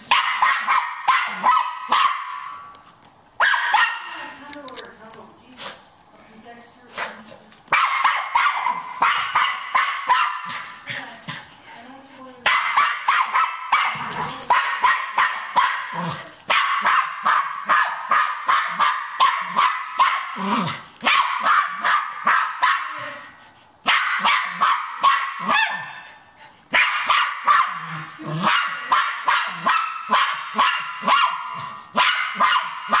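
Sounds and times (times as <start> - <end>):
dog barking rapidly: 0.0 - 2.5, 3.4 - 4.2, 7.7 - 10.6, 12.4 - 23.0, 23.8 - 26.0, 26.7 - 27.8, 28.4 - 33.0.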